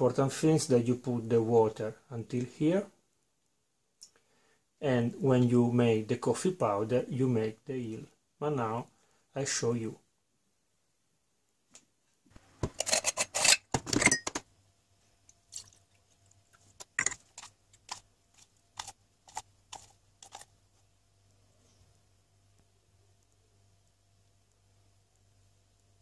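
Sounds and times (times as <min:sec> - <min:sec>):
metal parts clattering in sink: 0:12.6 - 0:14.4, 0:16.8 - 0:17.4.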